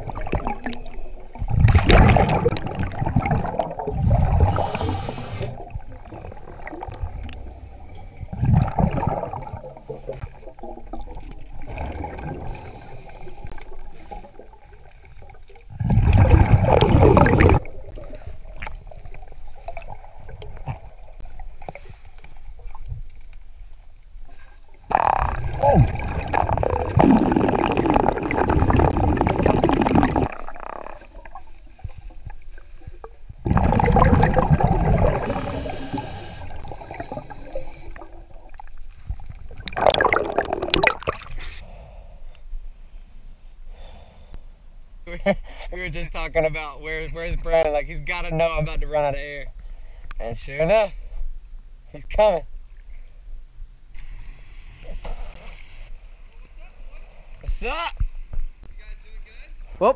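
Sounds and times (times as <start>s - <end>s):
exhaled bubbles underwater: 0.0s - 21.6s, 24.9s - 41.4s
underwater water noise: 0.0s - 45.0s, 52.5s - 58.7s.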